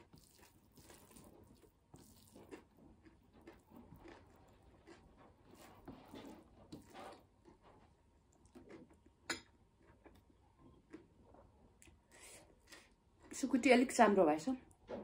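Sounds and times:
quiet chewing: 0.0 - 13.4.

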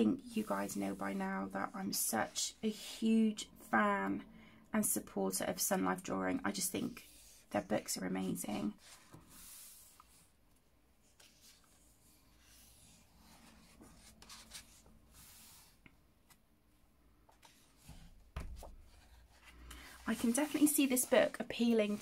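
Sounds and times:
paper rustling and rubbing: 11.0 - 16.4, 17.3 - 22.0.

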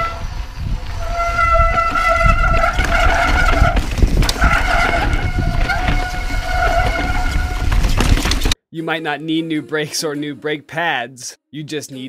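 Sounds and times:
bike disc brakes honking: 0.0 - 0.4, 1.0 - 8.1
tyres rumbling on rocky trail: 0.0 - 8.6.

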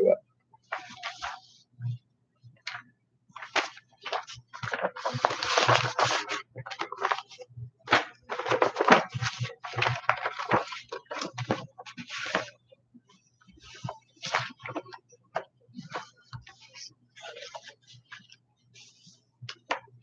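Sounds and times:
paper rustling and shuffling: 0.7 - 1.6, 3.4 - 12.6, 13.5 - 19.9.

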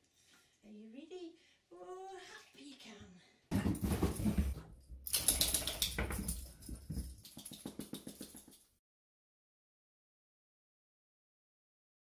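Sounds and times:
wet dog shaking and flapping: 3.5 - 8.6
light metallic jingle: 4.0 - 8.8.

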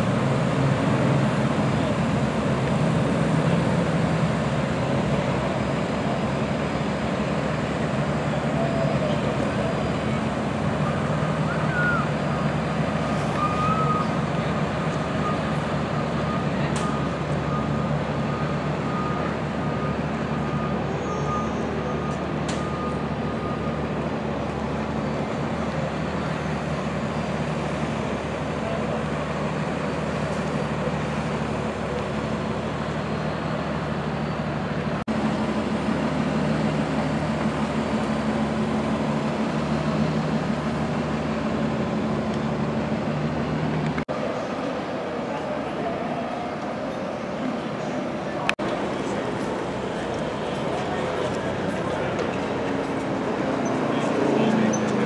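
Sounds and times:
bus engine idling: 0.0 - 55.0
outdoor traffic noise: 0.0 - 55.0.

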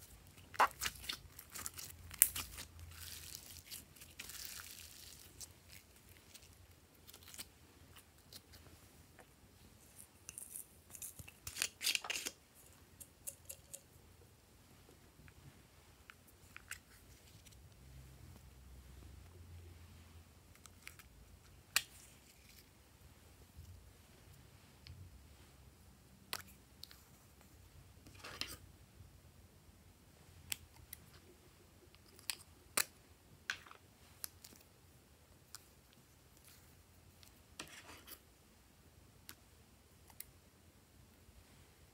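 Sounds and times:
handling small plastic items: 0.0 - 8.6, 9.2 - 14.0.

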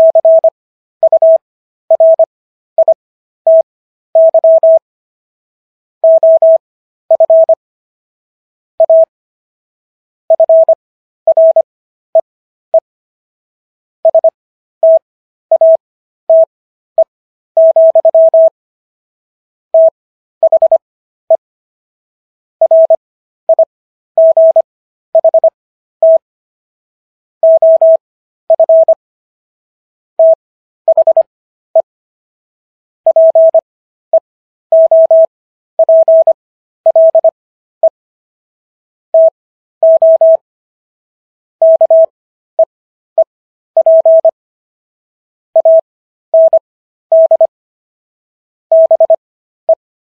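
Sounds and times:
morse code beeps: 0.0 - 4.8, 6.0 - 7.6, 8.8 - 9.1, 10.4 - 11.7, 14.0 - 16.5, 17.6 - 18.6, 19.8 - 20.8, 22.6 - 24.6, 25.2 - 26.2, 27.4 - 29.0, 30.2 - 31.9, 33.1 - 33.6, 34.7 - 38.0, 39.2 - 40.4, 41.6 - 42.7, 43.8 - 44.4, 45.6 - 47.5, 48.7 - 49.8.

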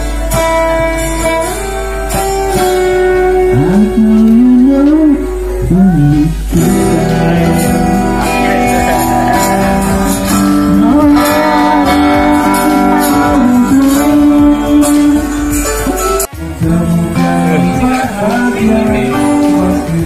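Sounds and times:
loud guitar music: 0.0 - 20.0.

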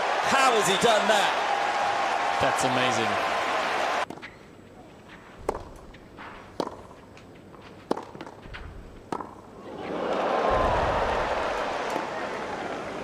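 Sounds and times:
crowd cheering and applause: 0.0 - 4.0, 9.6 - 13.0
tennis ball racket hits: 5.4 - 7.0, 7.6 - 9.4.

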